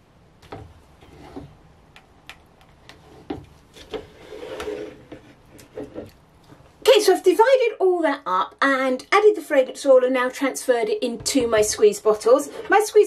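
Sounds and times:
spatula scraping inside a jug: 1.0 - 1.6.

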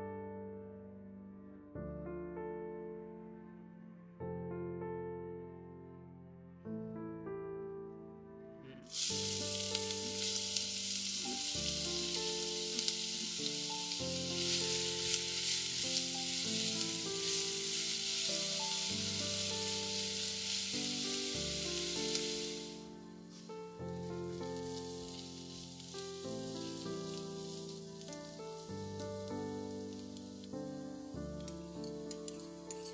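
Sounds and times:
soft piano music: 0.0 - 32.9
onion sizzling in hot oil: 8.8 - 32.9.

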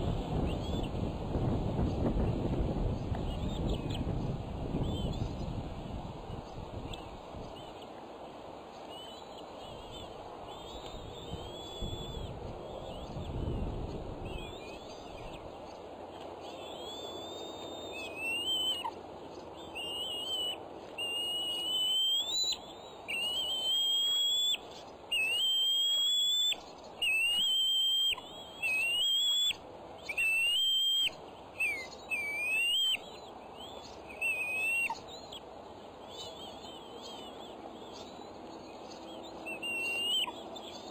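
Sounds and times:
eagles whistled calls: 16.6 - 19.0, 19.7 - 35.4, 39.2 - 40.9.

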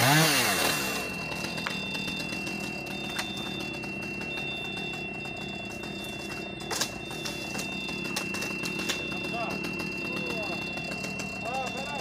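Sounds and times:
chainsaw revving: 0.0 - 3.0
high whine: 0.0 - 12.0
faint high tone beeping: 0.5 - 12.0
truck engine idling: 0.5 - 12.0.

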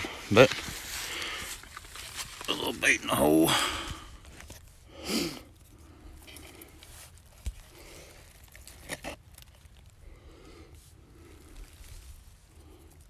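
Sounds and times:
hands rustling dry leaves: 0.0 - 13.0
scraping dirt: 6.3 - 9.8.

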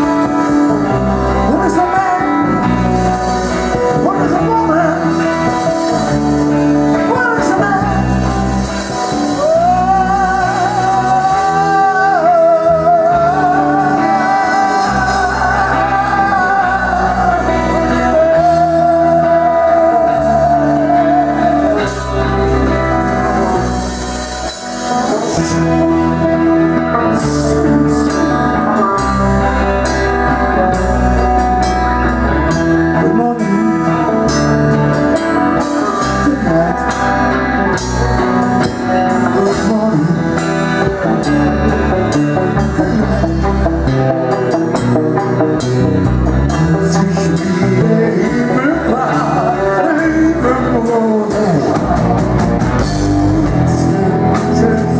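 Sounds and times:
rock band playing: 0.0 - 54.9
man singing a long high note: 1.3 - 23.7, 46.4 - 52.4.

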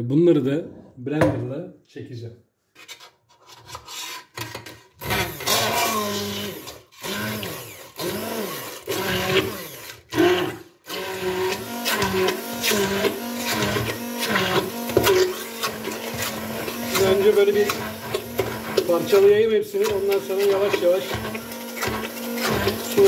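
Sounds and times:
stick blender motor running: 5.0 - 23.0.

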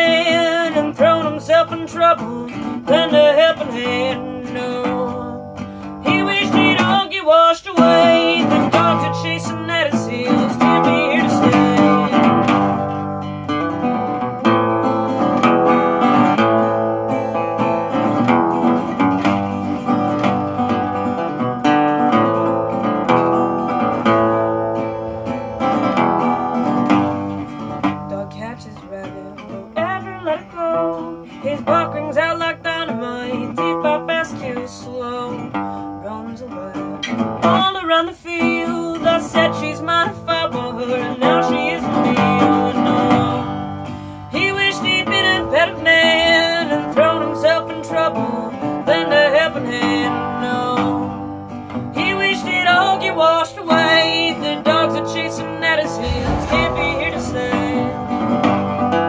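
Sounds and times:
resonator guitar playing: 22.5 - 28.1, 55.7 - 59.0.

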